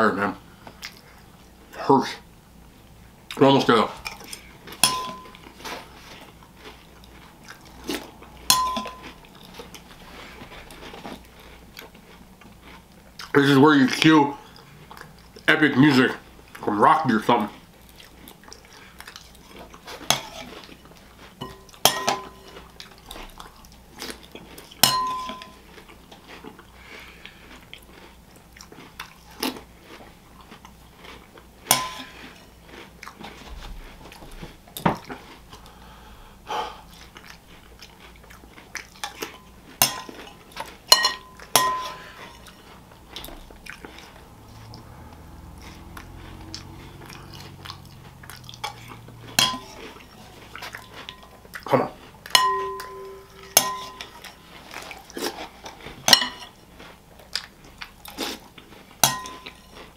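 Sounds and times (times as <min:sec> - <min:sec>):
chewing soggy cereal: 0:00.1 - 0:02.2, 0:02.8 - 0:59.9
spoon clinking against a bowl: 0:04.8 - 0:05.4, 0:08.5 - 0:09.2, 0:21.4 - 0:22.5, 0:24.8 - 0:25.6, 0:31.7 - 0:32.2, 0:39.0 - 0:40.2, 0:40.9 - 0:42.4, 0:49.4 - 0:49.8, 0:52.3 - 0:54.4, 0:56.1 - 0:56.5, 0:59.0 - 0:59.7.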